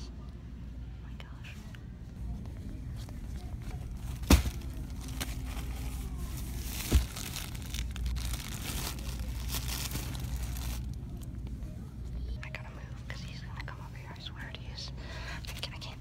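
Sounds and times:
plastic wrapping crinkling: 3.5s - 11.3s.

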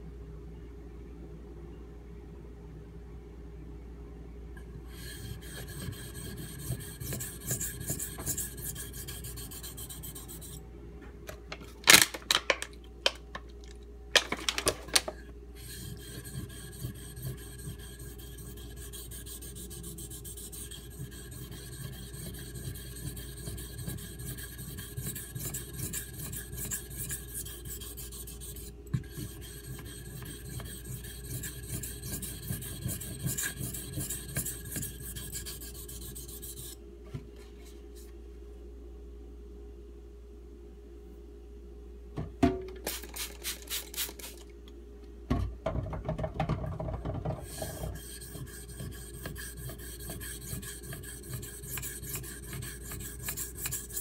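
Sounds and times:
knife scraping on whetstone: 4.9s - 10.6s, 15.6s - 36.8s, 47.4s - 54.0s.

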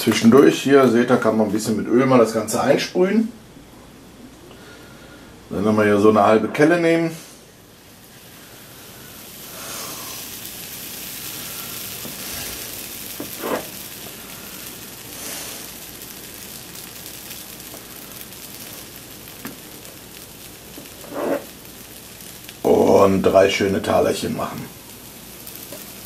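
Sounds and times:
batter sizzling in a frying pan: 7.2s - 26.0s.

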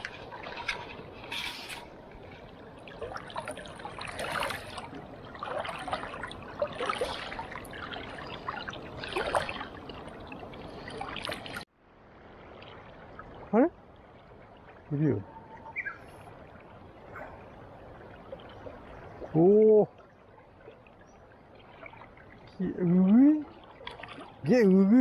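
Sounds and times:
river current gurgling: 0.0s - 25.0s
small water splashes: 0.0s - 25.0s.

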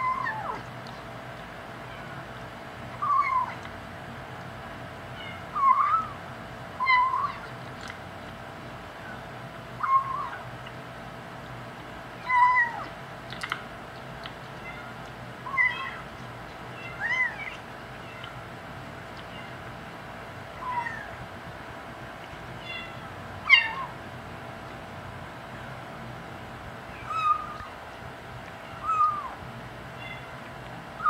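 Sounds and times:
kitten mewing: 0.0s - 0.7s, 3.0s - 3.7s, 6.8s - 7.5s, 9.8s - 10.4s, 15.5s - 16.1s, 16.8s - 18.4s, 20.6s - 21.2s, 22.6s - 24.0s, 27.0s - 27.8s, 28.6s - 29.4s.

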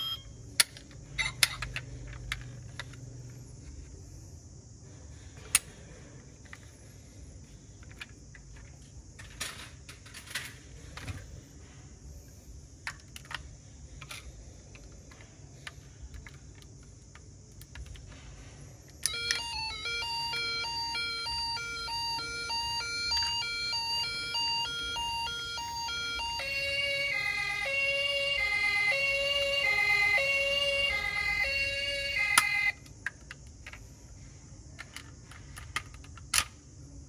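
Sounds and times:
toy ambulance siren: 0.0s - 0.4s, 1.1s - 1.8s, 19.0s - 32.9s
toy cars clicking and tapping: 0.6s - 3.4s, 12.8s - 18.2s, 34.8s - 36.6s.

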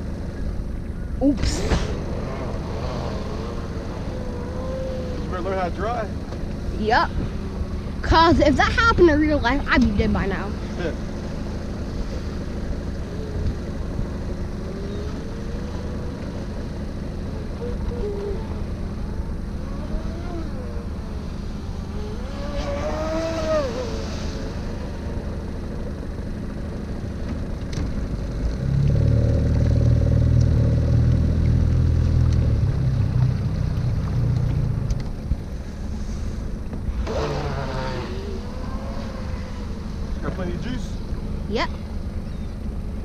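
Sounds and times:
gulls calling: 0.0s - 26.8s, 36.8s - 43.0s
boat engine running: 0.0s - 43.0s.

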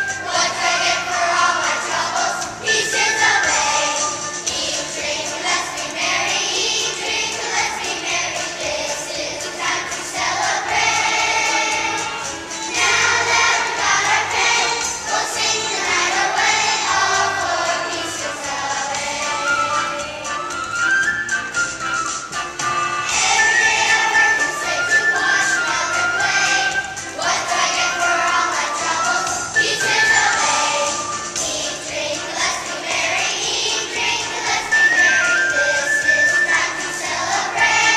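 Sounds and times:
children's choir singing: 0.0s - 37.9s
musical accompaniment: 0.0s - 37.9s.

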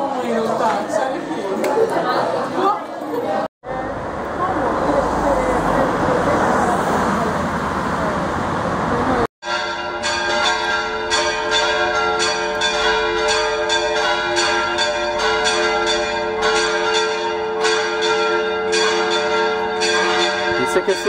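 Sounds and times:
church bells ringing a peal: 9.4s - 21.0s.

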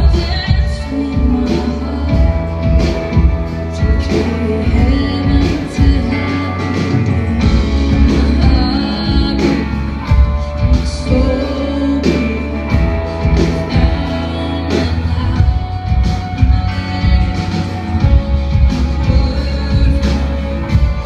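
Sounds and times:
live band playing: 0.0s - 21.0s
woman singing: 0.0s - 21.0s.

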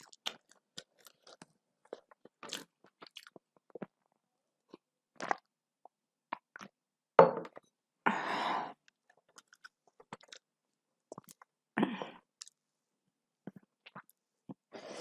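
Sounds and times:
chewing: 9.1s - 10.4s.

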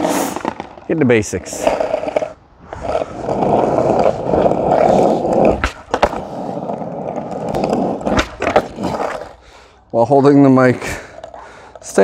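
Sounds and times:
skateboard wheels rolling on asphalt: 0.0s - 12.0s
skateboard clacks: 1.4s - 9.4s.

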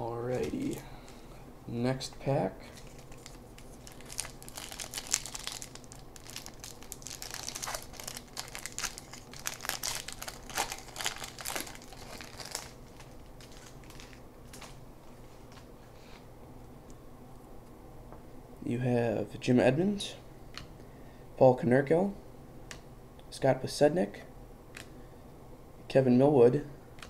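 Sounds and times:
wrapper crinkling and tearing: 2.7s - 14.8s.

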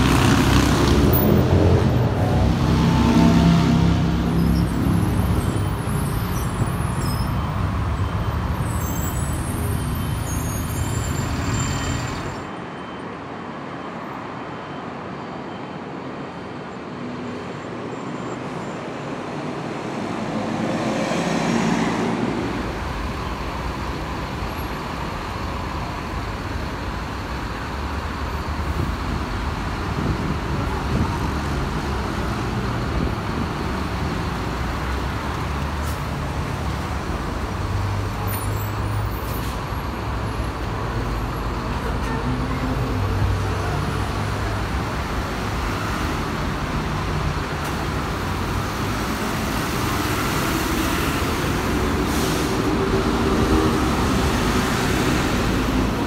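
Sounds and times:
vehicle passing: 0.0s - 5.4s
steady traffic noise: 0.0s - 56.0s
heavy engine rumble: 22.4s - 56.0s.

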